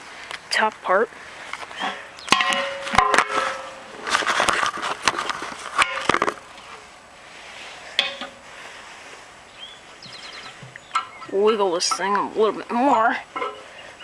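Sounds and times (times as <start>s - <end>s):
metal clanks and scrapes: 1.8s - 6.4s, 8.0s - 8.4s, 13.4s - 13.7s.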